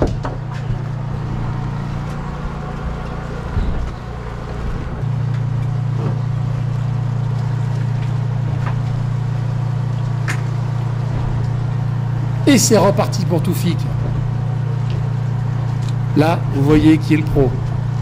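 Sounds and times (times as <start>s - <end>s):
knocks and clatter on deck: 0.0s - 0.8s
boat engine drone: 0.0s - 18.0s.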